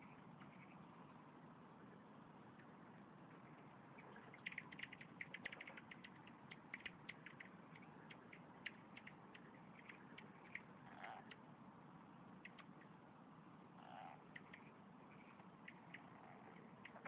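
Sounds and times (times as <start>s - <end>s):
steady background hiss: 0.0s - 17.0s
frogs chirping: 2.6s - 11.5s, 12.4s - 13.0s, 13.8s - 17.0s.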